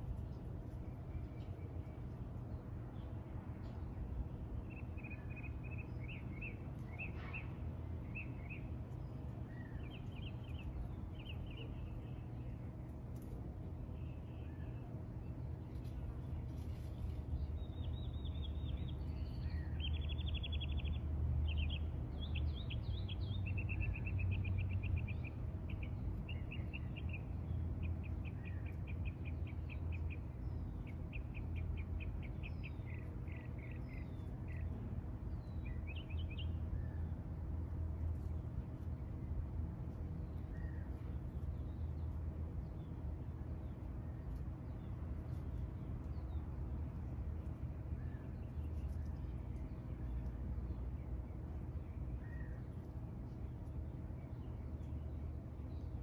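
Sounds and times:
songbird trilling and chirping: 17.4s - 37.0s.

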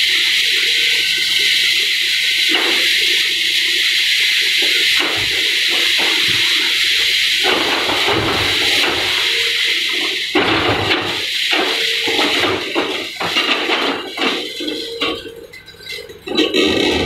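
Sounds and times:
steady hiss: 0.0s - 14.9s
debris falling with rumble: 7.4s - 9.3s, 10.3s - 17.0s.

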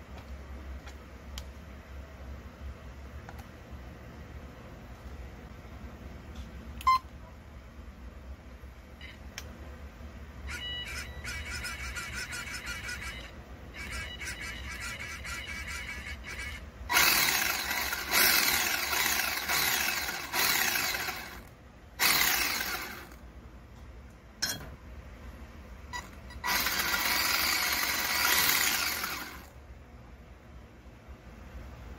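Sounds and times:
steering servo whirring: 15.0s - 21.4s, 22.0s - 23.2s, 26.4s - 29.5s.

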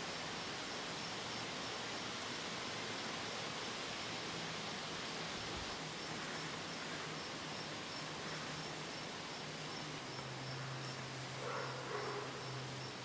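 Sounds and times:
insect chirping faintly: 0.0s - 13.0s
steady hiss: 0.0s - 13.0s.

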